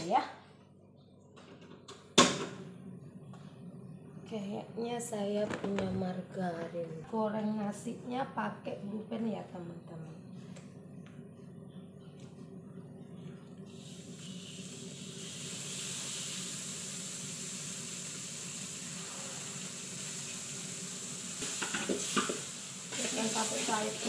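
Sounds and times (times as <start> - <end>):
margarine sizzling in a pan: 13.8 - 24.0.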